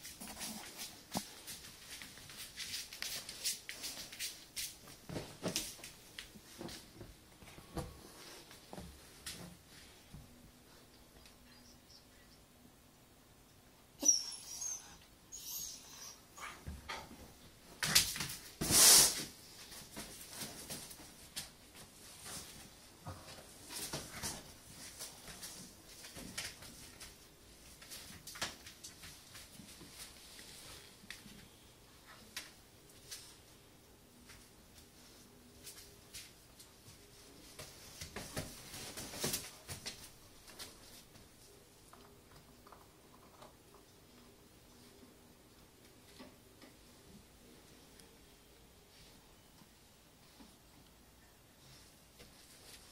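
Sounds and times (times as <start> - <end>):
puppy scuffling with toy: 0.0 - 5.9.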